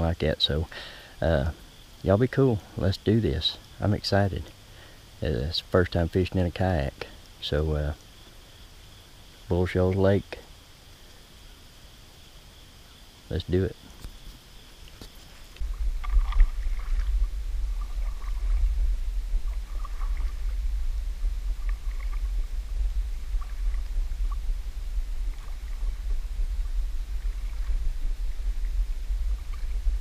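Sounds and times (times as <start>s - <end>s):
paddle splashes and drips: 13.8s - 30.0s
low rumble: 15.6s - 30.0s.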